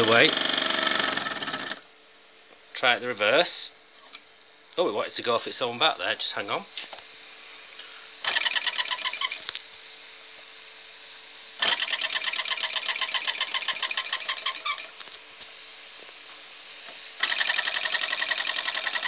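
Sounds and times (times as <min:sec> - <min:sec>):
faint steam hiss: 0:02.8 - 0:08.2
model steam engine chuffing: 0:11.6 - 0:14.9, 0:17.2 - 0:19.0.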